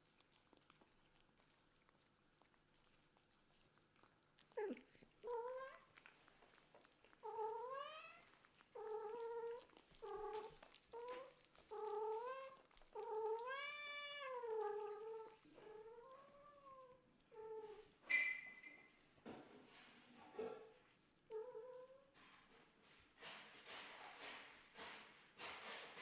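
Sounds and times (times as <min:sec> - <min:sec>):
cat meowing: 0:04.5 - 0:05.9, 0:07.2 - 0:17.9.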